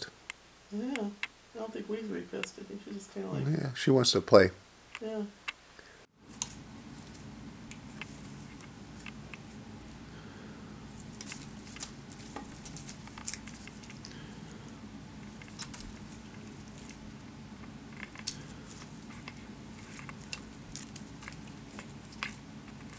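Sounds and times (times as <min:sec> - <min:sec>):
ribbon rustling: 0:06.2 - 0:10.1, 0:10.8 - 0:22.9
claws scratching on cane and wood: 0:06.4 - 0:10.0, 0:10.9 - 0:14.2, 0:15.2 - 0:17.1, 0:17.9 - 0:22.9.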